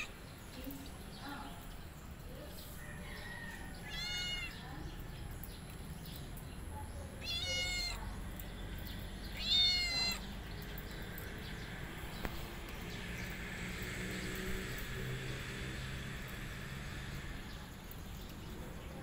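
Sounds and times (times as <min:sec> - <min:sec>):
cat meowing: 0:03.8 - 0:04.6, 0:07.2 - 0:08.0, 0:09.4 - 0:10.3.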